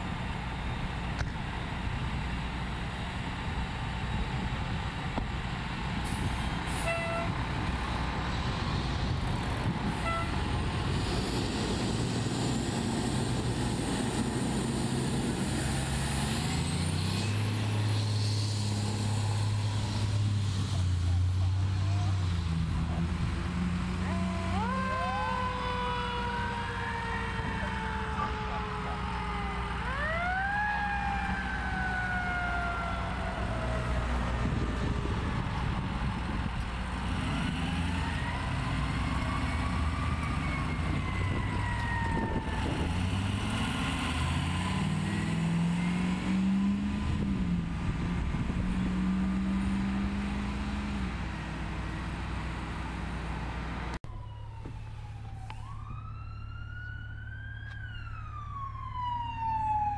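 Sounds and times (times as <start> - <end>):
emergency sirens wailing: 0.0 - 59.9
heavy vehicle engines: 0.0 - 59.9.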